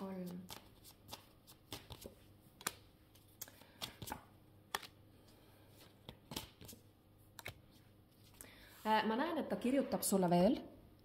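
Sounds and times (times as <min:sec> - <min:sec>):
cards clicking on tabletop: 0:00.5 - 0:05.0.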